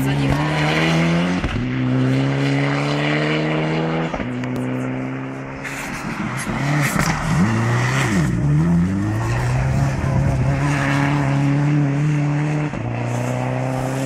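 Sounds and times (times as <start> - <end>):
rally car engine revving: 0.0 - 14.0.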